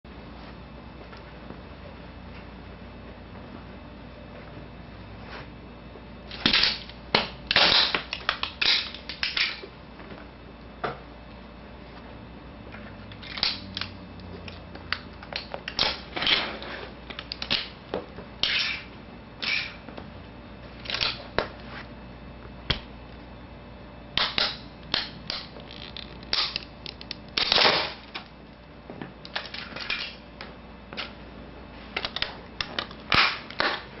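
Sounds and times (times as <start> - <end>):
toy train cracking under shoes: 6.4 - 9.6, 24.2 - 28.3.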